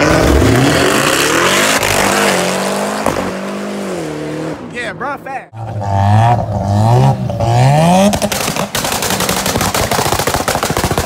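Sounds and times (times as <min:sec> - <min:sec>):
sports car engine revving: 0:00.0 - 0:04.7, 0:05.6 - 0:09.4
exhaust pops crackling: 0:08.0 - 0:11.0.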